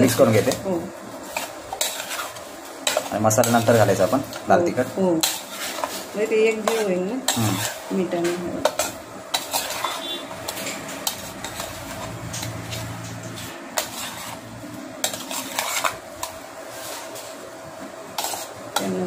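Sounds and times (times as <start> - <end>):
steel spoon scraping a plate: 1.3 - 3.8, 5.2 - 7.8, 8.6 - 17.1, 18.2 - 18.6.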